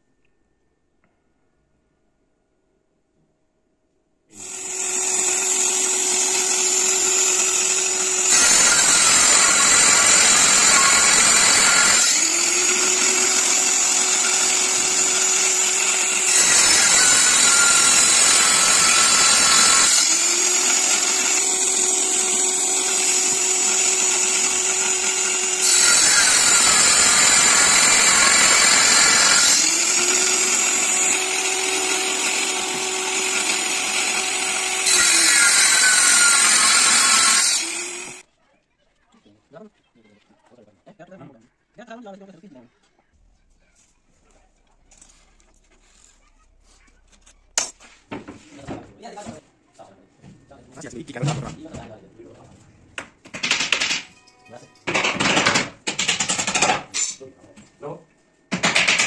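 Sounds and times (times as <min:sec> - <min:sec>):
table saw cutting panel: 0:04.4 - 0:38.2.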